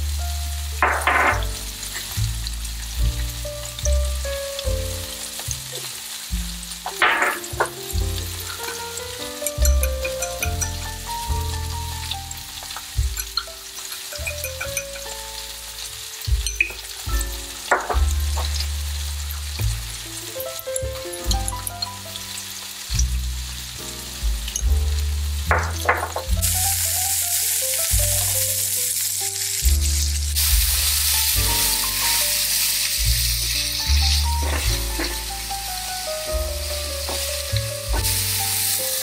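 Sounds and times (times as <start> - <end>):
background music with bassline: 0.0 - 27.2, 27.9 - 28.6, 29.6 - 39.0
zucchini sizzling in a frying pan: 0.0 - 39.0
spatula stirring: 6.8 - 11.1
seasonings shaken: 26.4 - 39.0.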